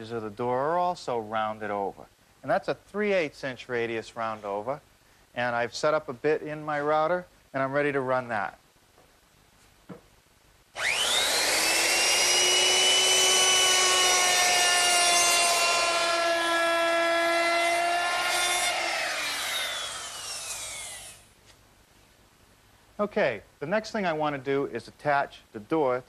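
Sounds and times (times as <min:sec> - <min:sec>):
electric router whining: 0:10.8 - 0:21.2.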